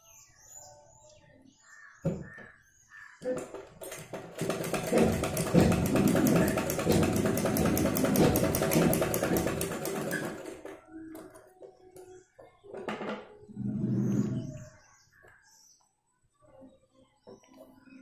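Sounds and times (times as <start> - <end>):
sewing machine clatter: 3.3 - 10.9.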